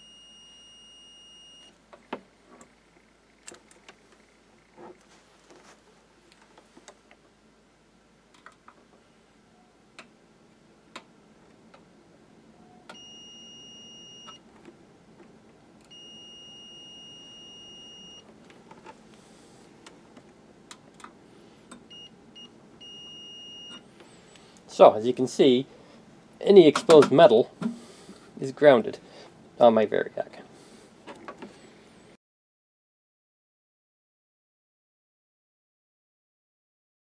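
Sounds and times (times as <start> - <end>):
multimeter continuity beep: 0.0 - 1.8, 12.6 - 14.4, 15.9 - 18.3, 21.9 - 23.8.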